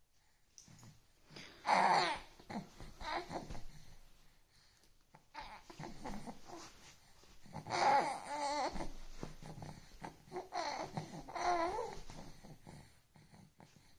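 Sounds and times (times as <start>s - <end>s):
infant cooing and babbling: 1.6s - 4.0s, 5.2s - 13.4s.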